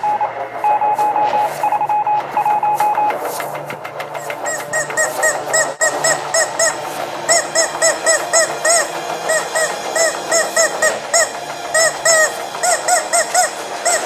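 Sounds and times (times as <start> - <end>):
rubber chicken squeak toy honks: 4.4 - 14.0.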